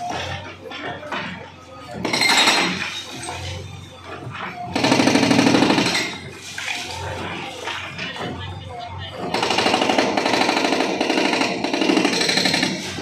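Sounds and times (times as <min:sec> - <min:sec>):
hydraulic breaker hammering wall: 0:04.7 - 0:06.3, 0:09.3 - 0:13.0.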